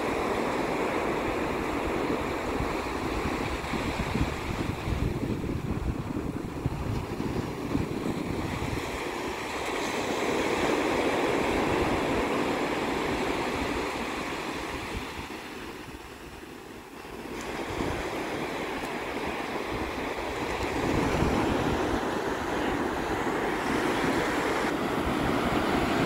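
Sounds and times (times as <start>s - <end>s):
ocean waves breaking on beach: 0.0s - 26.0s.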